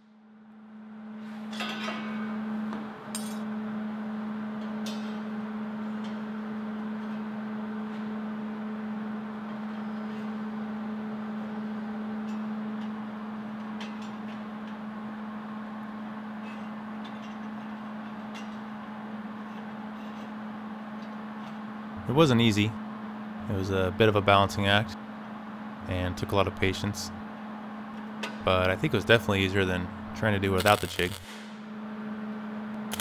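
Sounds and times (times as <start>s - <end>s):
low hum: 20.2s - 33.0s.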